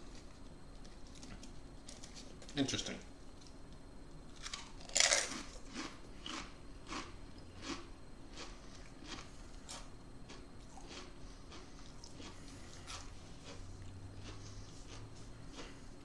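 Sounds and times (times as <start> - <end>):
chewing crisp crunches: 4.3 - 16.0
potato crisp crunching: 4.3 - 16.0.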